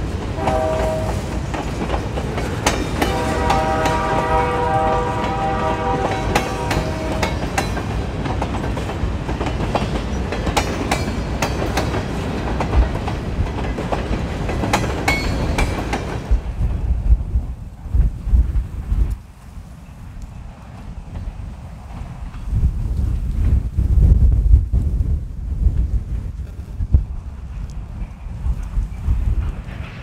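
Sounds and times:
wheels clicking over rail joints: 0.0 - 16.8
freight train rumbling past: 0.0 - 30.0.

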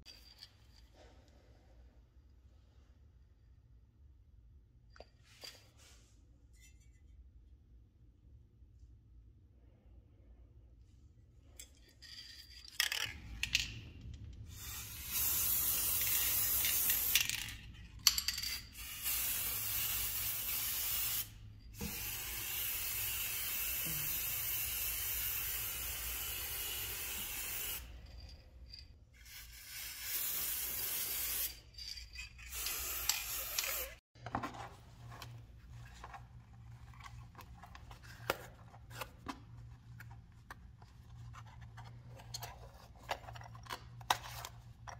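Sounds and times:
spray paint can hissing: 14.5 - 17.3, 18.8 - 27.9, 29.2 - 31.6, 32.5 - 34.0.

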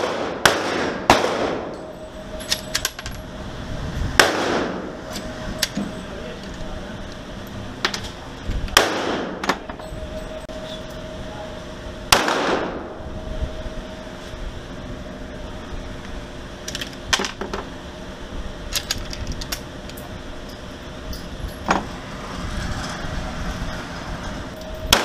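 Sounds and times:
pistol gunshot echoing: 0.0 - 1.7, 4.2 - 4.8, 8.8 - 9.4, 12.1 - 12.8
steady hum: 0.0 - 25.0.

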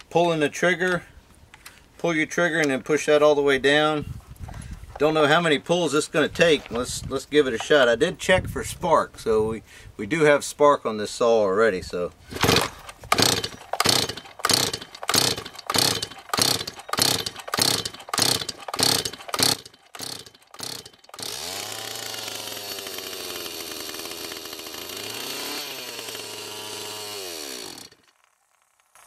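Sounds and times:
chainsaw engine running unevenly: 12.3 - 28.7
recoil starter pulls: 12.3 - 29.0.

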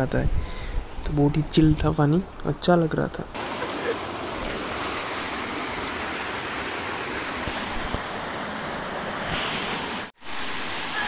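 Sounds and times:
river water rushing over rocks: 3.4 - 11.0.

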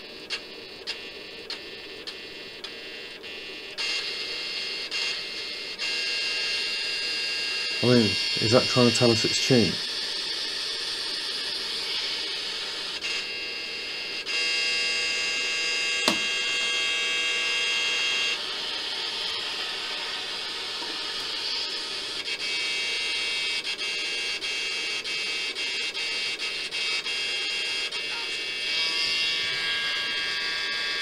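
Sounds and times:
radio static hiss: 0.0 - 14.2, 15.5 - 16.9, 24.0 - 31.0
whining tones: 0.0 - 24.9, 25.7 - 31.0
sharp click: 16.1 - 16.3.

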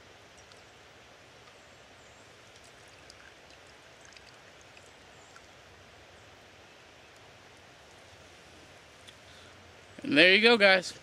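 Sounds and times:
steady hiss: 0.0 - 11.0
coffee dripping into cup: 2.4 - 5.5.

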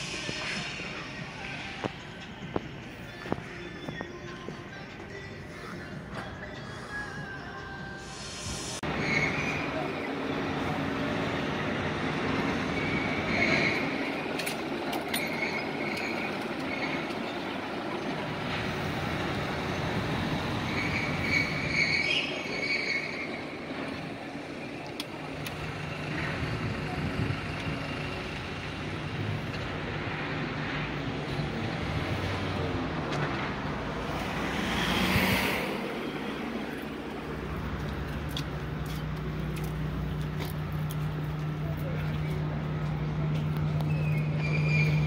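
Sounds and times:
city street traffic: 0.0 - 45.0
brief high squeal: 8.0 - 9.8, 20.7 - 23.4, 43.8 - 45.0.

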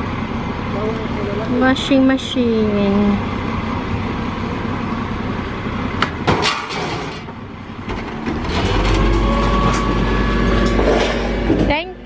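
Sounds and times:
garbage truck engine running: 0.0 - 12.0
hydraulic compactor whine: 3.2 - 12.0.

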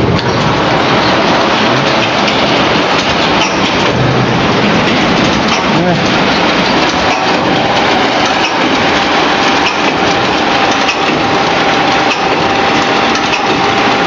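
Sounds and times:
conveyor machinery din: 0.0 - 14.0
rattling clicks: 0.1 - 13.7.

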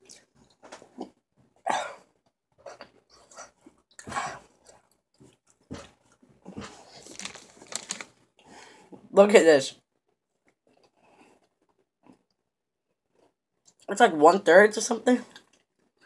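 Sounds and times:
person chewing chocolate: 2.2 - 8.5, 10.3 - 13.9, 15.4 - 16.0.

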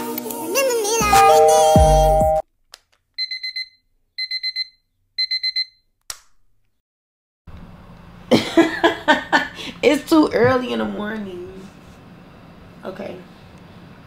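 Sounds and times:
alarm clock beeping: 1.1 - 2.4, 3.2 - 5.8.

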